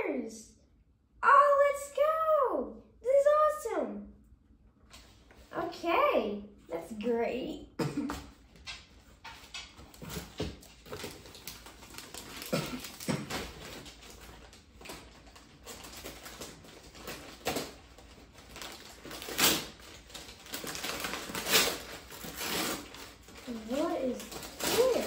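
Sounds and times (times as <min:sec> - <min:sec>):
paper and cardboard rustling: 0:09.0 - 0:25.0
wrapping paper rustle: 0:09.9 - 0:25.0.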